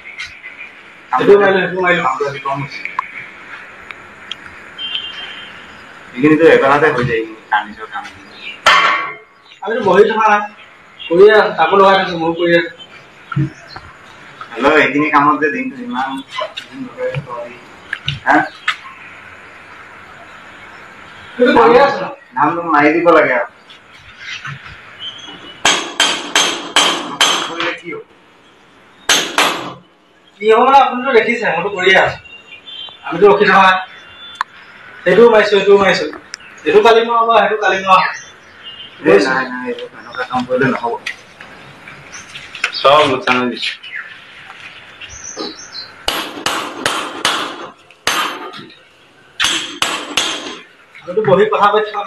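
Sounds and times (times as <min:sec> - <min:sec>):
hammer striking metal: 0:25.6 - 0:27.7, 0:29.1 - 0:29.8, 0:46.1 - 0:48.6, 0:49.4 - 0:50.6.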